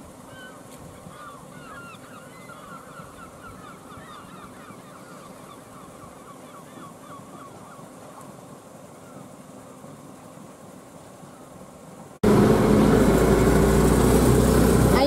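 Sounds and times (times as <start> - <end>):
flock of birds calling: 0.2 - 8.3.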